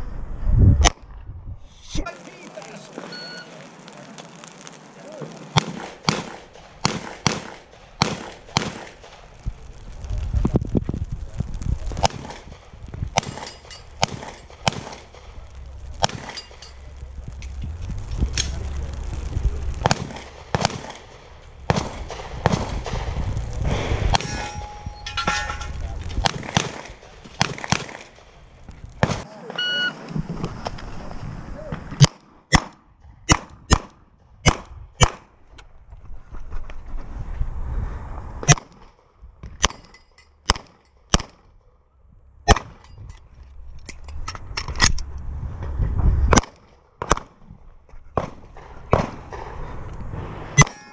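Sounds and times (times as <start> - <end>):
pistol shots: 5.5 - 9.2, 13.2 - 15.2, 16.0 - 16.6, 19.8 - 23.2, 26.2 - 28.2, 32.0 - 35.3, 40.5 - 41.5, 48.2 - 49.6.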